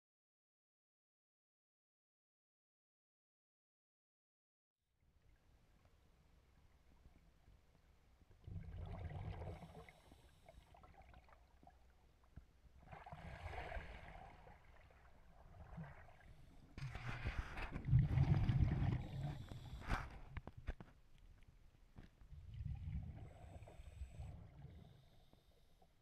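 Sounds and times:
bubbling exhalation underwater: 8.4s - 10.0s, 17.8s - 19.9s.

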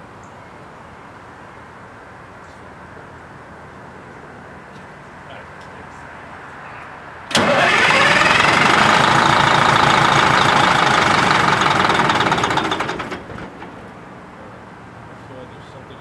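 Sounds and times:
diesel engine running and stopping: 7.3s - 14.0s.

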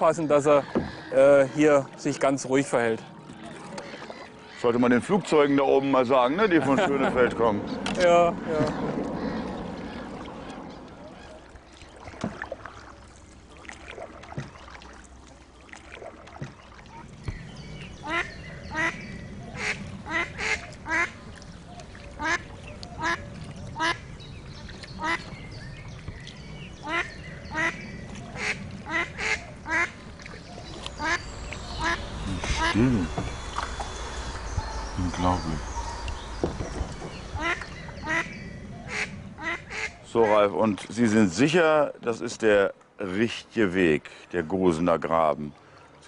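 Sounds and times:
duck quacking: 18.0s - 19.0s, 19.6s - 21.2s, 26.8s - 27.8s, 28.4s - 30.0s, 31.0s - 33.3s, 37.3s - 40.0s.

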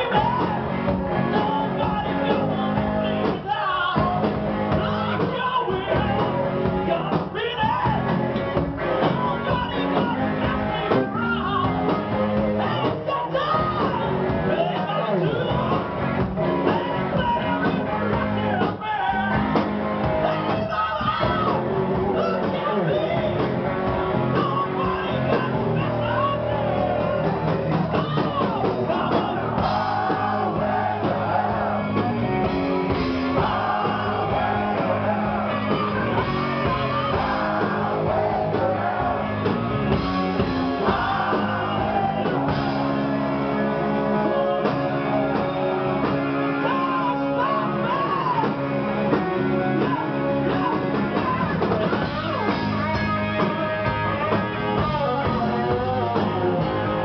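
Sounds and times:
man singing and shouting: 0.0s - 43.1s, 43.7s - 57.0s
drums: 0.0s - 57.0s
electric guitar: 0.0s - 57.0s
live rock band playing: 0.0s - 57.0s.

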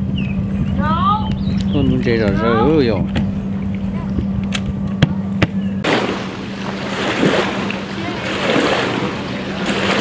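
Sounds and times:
wind on microphone: 0.0s - 5.9s
low hum: 0.0s - 10.0s.

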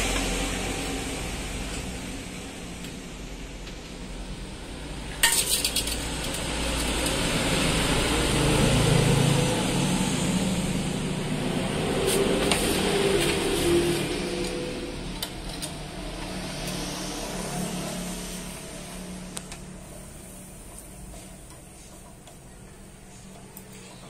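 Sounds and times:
sharp metal clank with rattle: 5.1s - 6.4s.

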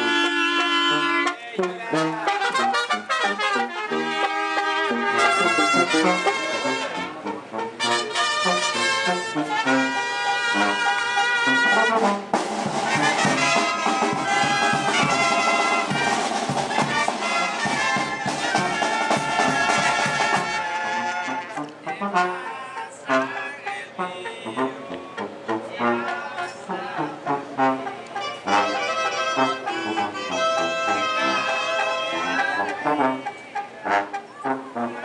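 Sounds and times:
brass band playing: 0.0s - 35.0s.

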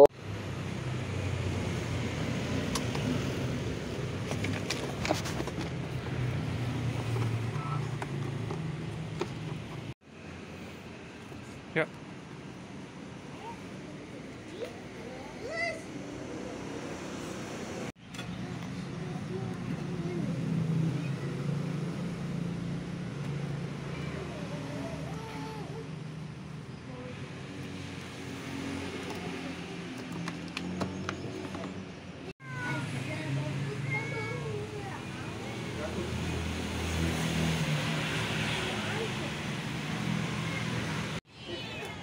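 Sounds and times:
vehicle engine humming: 0.0s - 10.8s.

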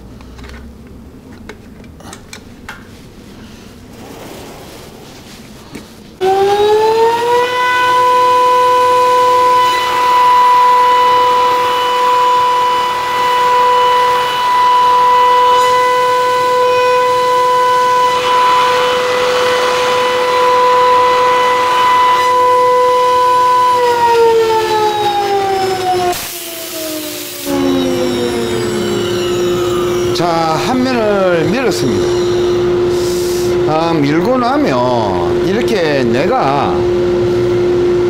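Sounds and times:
machine spindle whine: 4.0s - 38.0s
wood cutting hiss: 25.8s - 30.2s, 32.0s - 33.6s.

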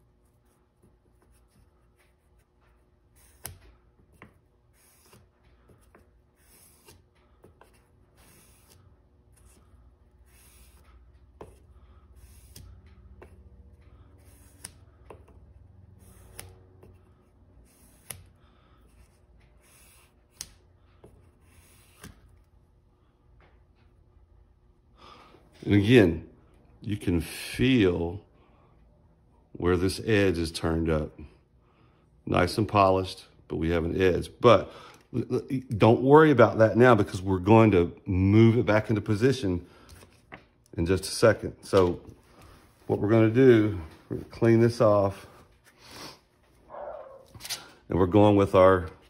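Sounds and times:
steel rubbing on abrasive paper: 4.7s - 5.3s, 8.1s - 9.6s.

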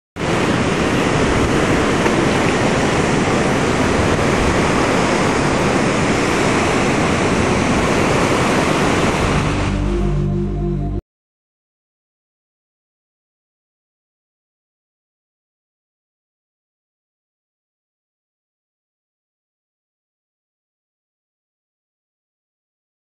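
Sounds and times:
steady rushing noise: 0.2s - 10.9s
low held chord: 9.1s - 11.0s.

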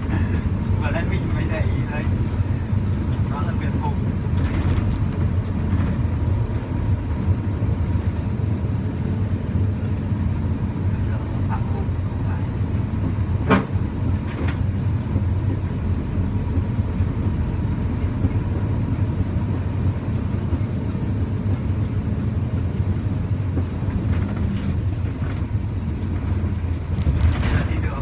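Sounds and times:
truck engine running: 0.0s - 28.0s.

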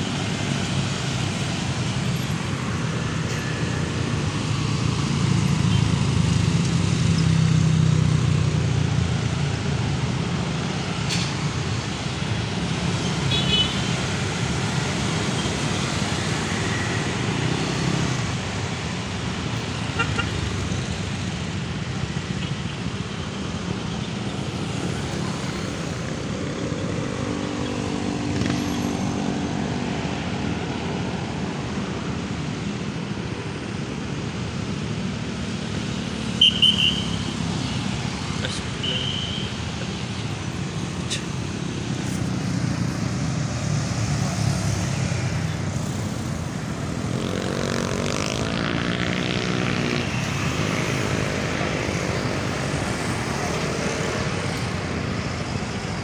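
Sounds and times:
passing traffic noise: 0.0s - 56.0s.

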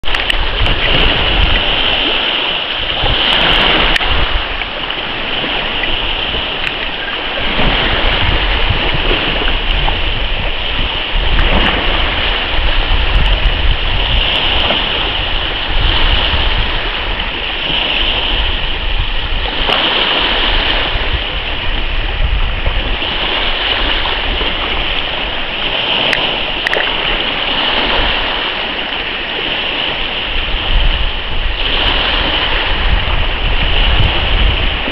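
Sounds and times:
sea water splashing: 0.0s - 34.9s
wind rumble on microphone: 0.0s - 34.9s.

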